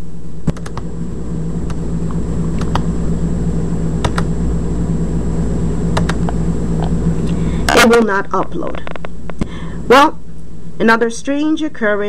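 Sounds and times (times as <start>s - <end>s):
steady low hum: 0.0s - 12.0s
laptop clicks: 4.0s - 4.3s, 6.0s - 6.3s.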